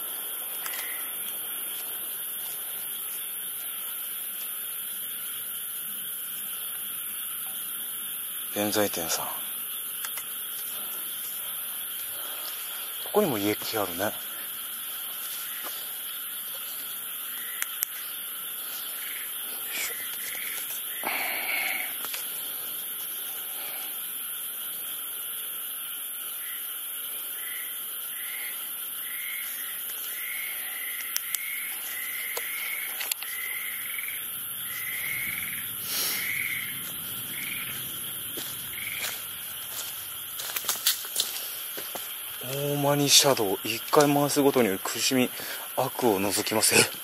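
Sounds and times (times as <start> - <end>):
steady hiss: 0.0 - 47.0
faint clicks: 0.6 - 1.4, 10.0 - 10.3, 17.6 - 18.0, 31.0 - 31.5, 32.3 - 33.4.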